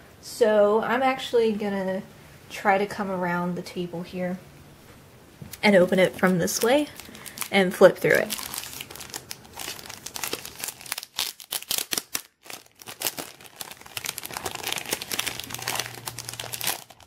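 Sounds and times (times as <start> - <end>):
plastic wrapping crinkling: 5.8 - 17.0.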